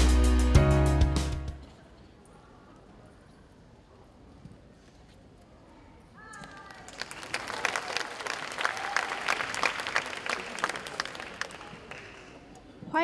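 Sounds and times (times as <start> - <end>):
audience clapping: 6.6 - 12.5.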